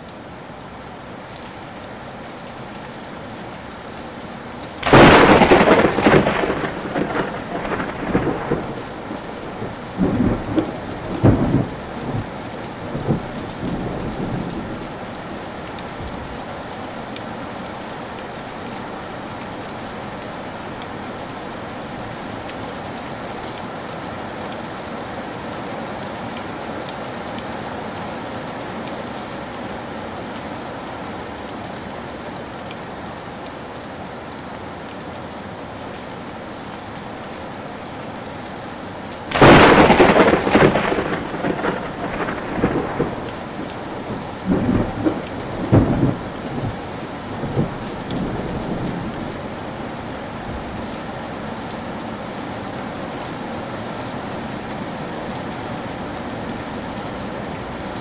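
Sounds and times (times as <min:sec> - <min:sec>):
rain falling steadily: 0:00.0 - 0:58.0
thunder rumbling and cracking: 0:04.8 - 0:12.3, 0:39.3 - 0:49.4.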